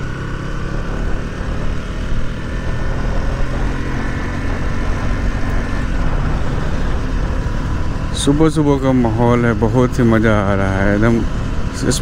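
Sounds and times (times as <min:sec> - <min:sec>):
motorcycle engine accelerating: 0:00.0 - 0:12.0
wind rumble on microphone: 0:00.6 - 0:12.0.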